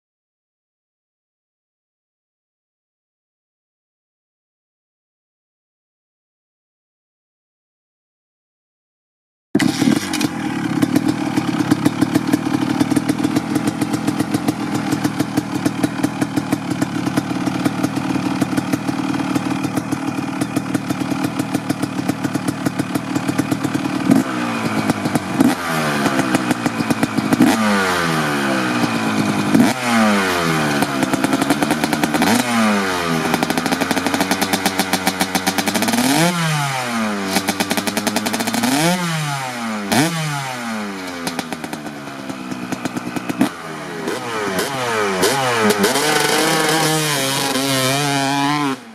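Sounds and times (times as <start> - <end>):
motorcycle engine idling and revving: 9.6 - 48.9.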